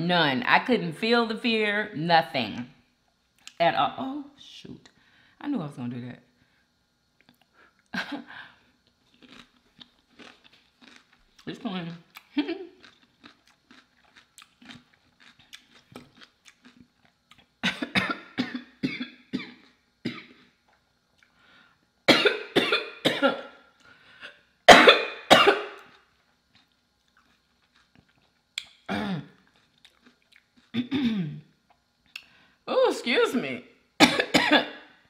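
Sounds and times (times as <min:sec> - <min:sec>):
woman coughing: 0:17.6 - 0:20.4, 0:22.1 - 0:23.6, 0:24.7 - 0:25.8, 0:28.9 - 0:29.3, 0:30.8 - 0:31.4, 0:34.0 - 0:34.8.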